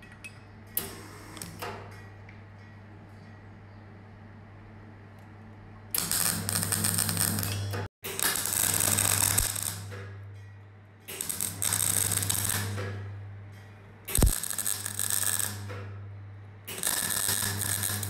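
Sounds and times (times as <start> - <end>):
welder low hum: 5.9 - 10.0, 11.1 - 13.4, 14.1 - 18.0
welding arc crackle: 6.0 - 10.0, 11.1 - 13.0, 14.1 - 15.8, 16.7 - 18.0.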